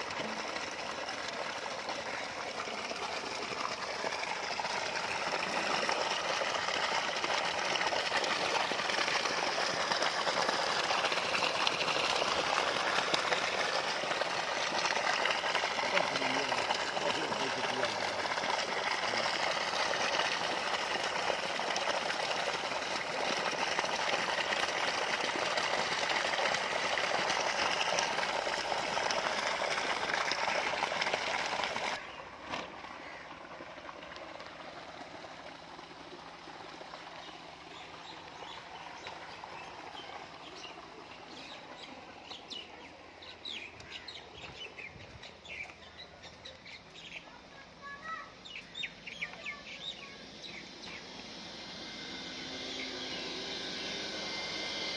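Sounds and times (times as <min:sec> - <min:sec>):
water gushing from a pipe: 0:00.0 - 0:44.6
birds chirping: 0:37.2 - 0:51.1.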